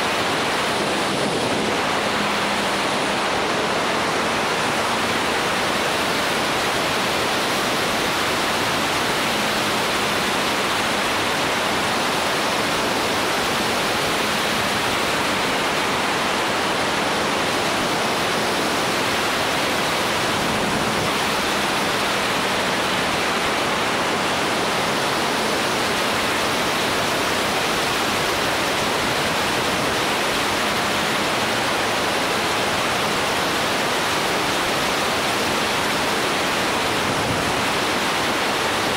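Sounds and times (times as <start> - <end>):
wind buffeting microphone: 0.0 - 32.0, 36.5 - 38.9.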